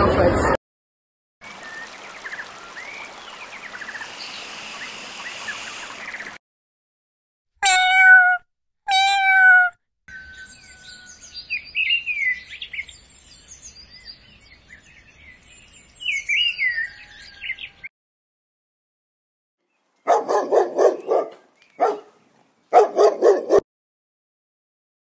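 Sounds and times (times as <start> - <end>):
birds chirping and whistling: 1.6 - 6.3, 10.1 - 17.9
cat meowing: 7.6 - 9.8.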